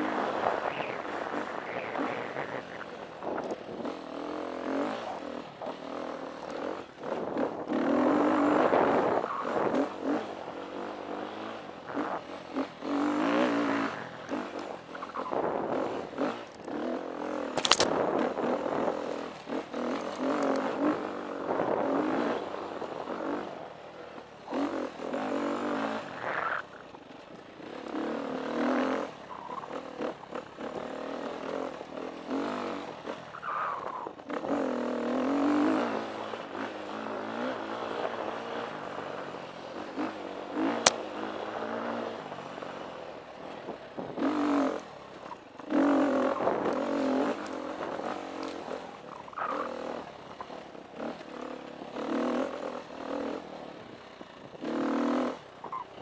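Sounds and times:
motorcycle engine revving: 0.0 - 56.0
bike rattling over rough ground: 12.1 - 24.4
sharp click: 17.6 - 18.0.

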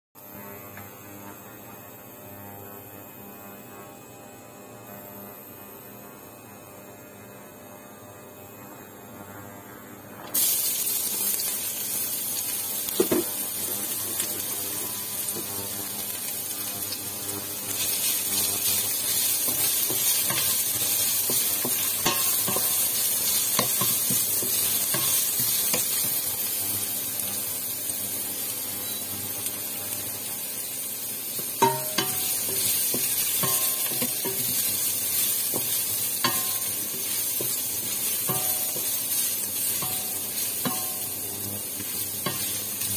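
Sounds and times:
ginger sizzling in hot oil: 10.3 - 42.9
spatula knocking against pot: 31.6 - 32.2.

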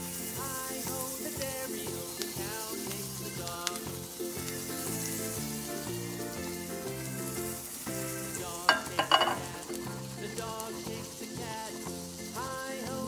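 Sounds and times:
butter sizzling in a pan: 0.0 - 13.0
pan clanking on stove grate: 8.7 - 9.6.

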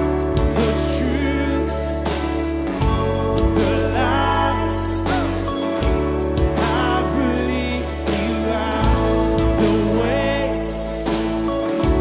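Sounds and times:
person singing a melody: 0.0 - 12.0.

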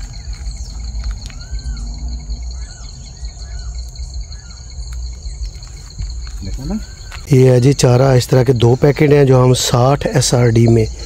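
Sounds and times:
low rumble: 0.0 - 7.3
bird chirps: 0.0 - 9.0
shrill insect chorus: 0.0 - 11.0.

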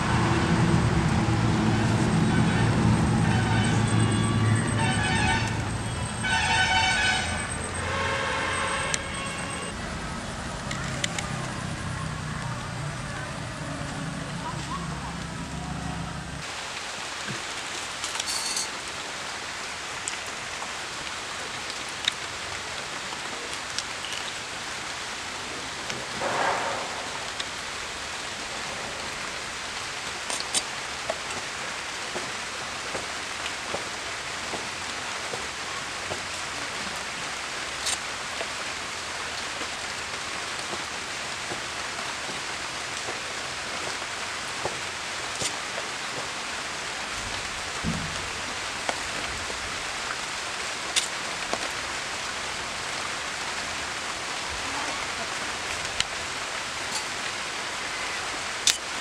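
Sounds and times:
plant stalks snapping: 58.6 - 58.9.

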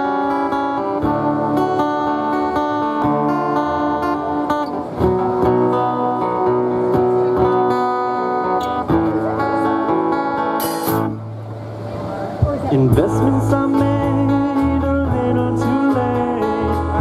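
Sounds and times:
electric guitars: 0.0 - 17.0
strummed acoustic guitar: 0.0 - 17.0.

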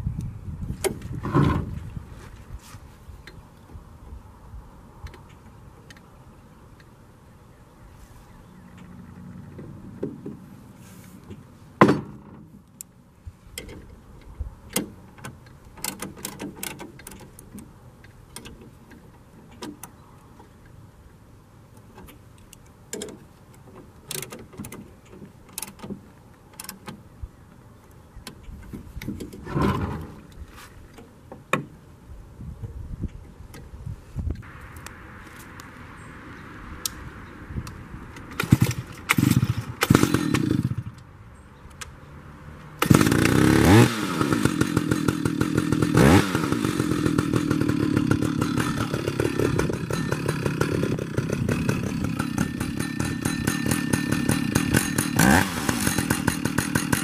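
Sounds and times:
metal frame clicks and scrapes: 28.4 - 31.1.

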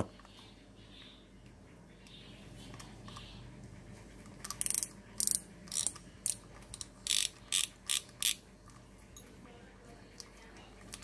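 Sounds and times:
fishing reel ratchet clicks: 4.5 - 8.4
fishing reel gear whirring: 7.0 - 8.4.

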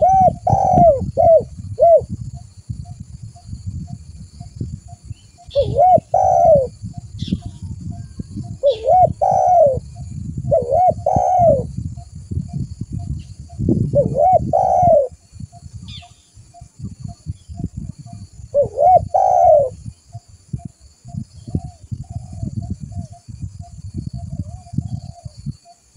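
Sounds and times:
dove cooing: 0.0 - 2.2, 5.5 - 11.8, 13.9 - 15.2, 17.8 - 19.8, 21.5 - 23.2.

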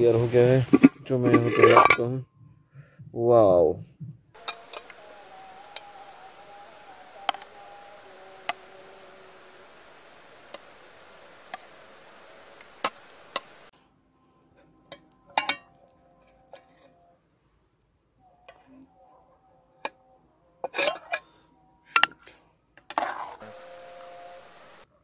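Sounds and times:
faint steady hiss: 0.0 - 2.2, 4.4 - 19.0, 19.8 - 25.0
spoon clinking on metal pot: 14.9 - 15.8.

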